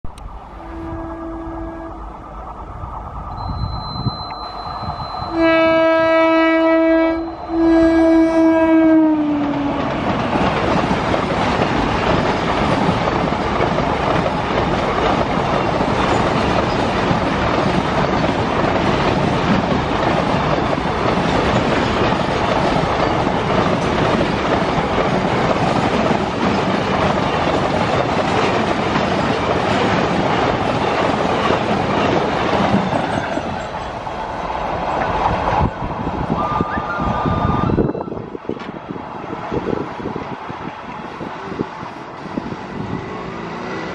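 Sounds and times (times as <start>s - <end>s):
freight train rumble and wheel clatter: 0.0s - 43.9s
locomotive horn blasts: 0.6s - 2.1s, 5.2s - 9.8s.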